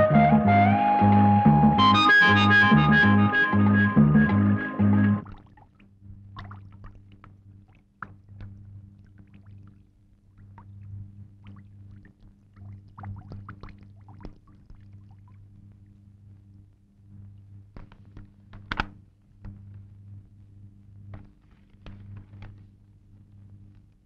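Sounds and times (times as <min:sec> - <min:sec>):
faint low hum: 0:03.6 - 0:24.0
soft clicks and crackles: 0:05.4 - 0:24.0.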